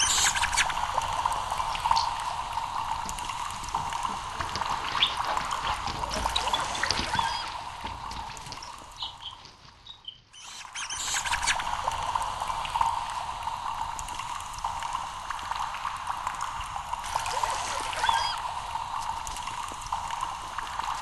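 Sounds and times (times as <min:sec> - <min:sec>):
rat squeaks: 0:00.0 - 0:00.7, 0:06.3 - 0:07.5, 0:09.0 - 0:11.5
water trickling through pipe: 0:00.0 - 0:09.4, 0:10.4 - 0:21.0.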